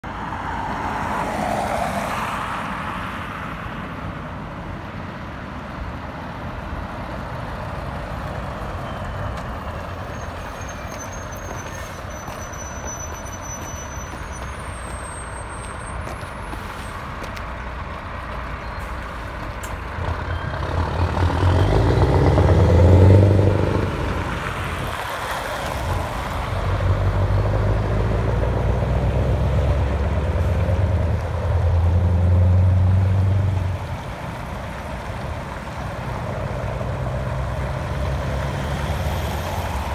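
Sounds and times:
road traffic passing: 0.0s - 39.9s
diesel truck engine through loud exhaust: 5.7s - 39.9s.

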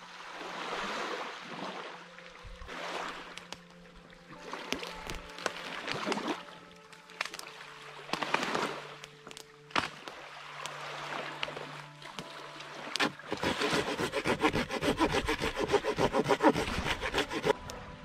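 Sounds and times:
hand saw cutting log: 12.9s - 17.6s.

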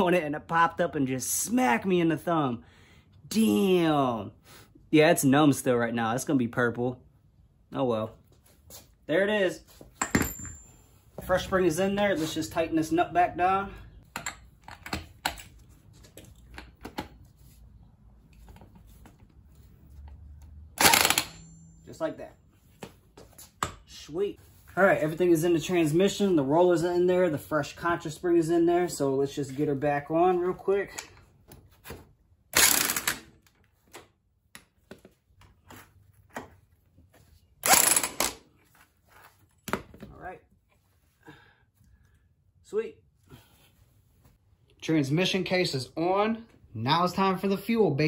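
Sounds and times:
clicks and knocks of tools: 14.1s - 17.1s.

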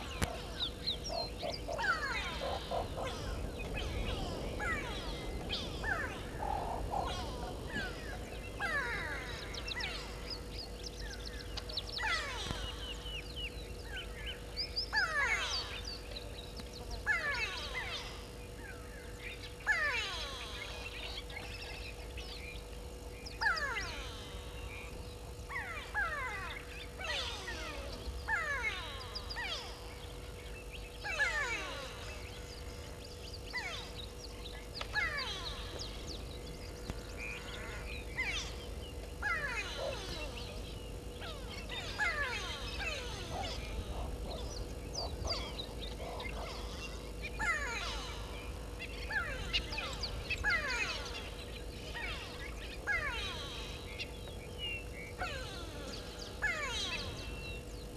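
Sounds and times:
faint electrical hum: 0.0s - 57.9s.

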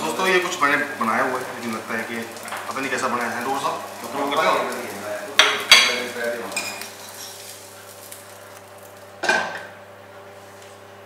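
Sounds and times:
faint frying sizzle: 0.0s - 11.0s.

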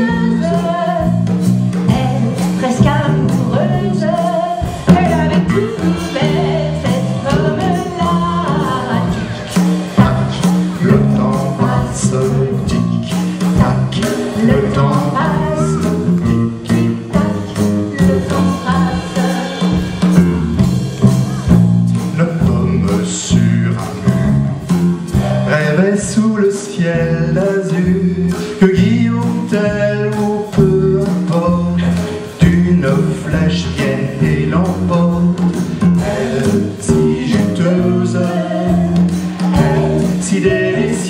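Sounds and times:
instrumental accompaniment with bass line: 0.0s - 41.0s
man singing into a microphone: 10.0s - 18.6s, 22.1s - 24.3s, 25.5s - 41.0s.

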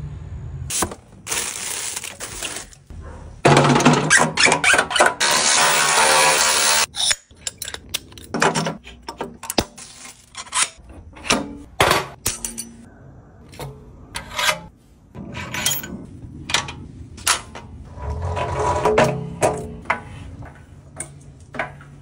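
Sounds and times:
metal parts clicking and clinking: 6.8s - 12.9s, 15.3s - 17.8s.

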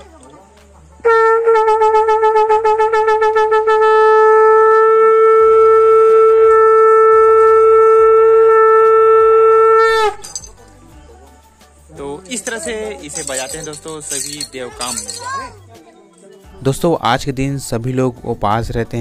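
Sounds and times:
brass horn long note: 1.0s - 10.1s.

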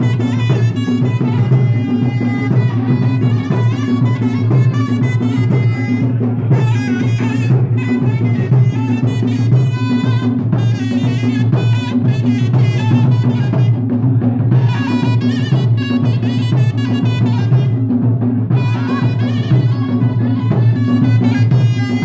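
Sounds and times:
barrel drums beating: 0.0s - 22.0s
reedy wind instrument melody: 0.0s - 22.0s.

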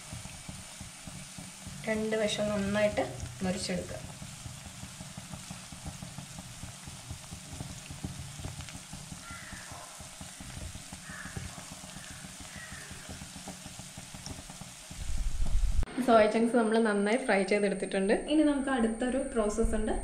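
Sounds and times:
food deep-frying in oil: 0.0s - 15.9s.

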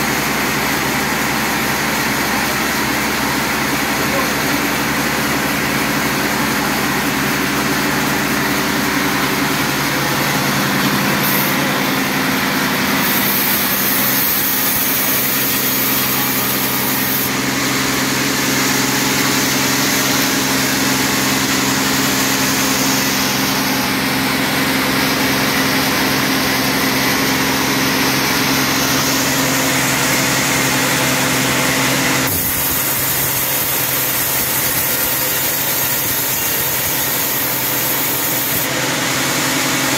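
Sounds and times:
band saw blade hissing through wood: 12.9s - 17.4s, 32.3s - 38.7s.

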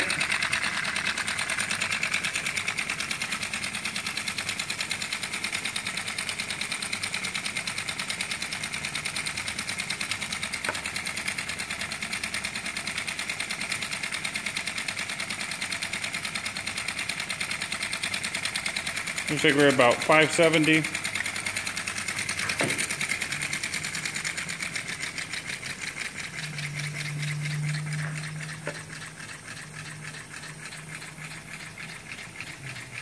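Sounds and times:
model steam engine pulsing exhaust: 0.0s - 33.0s.

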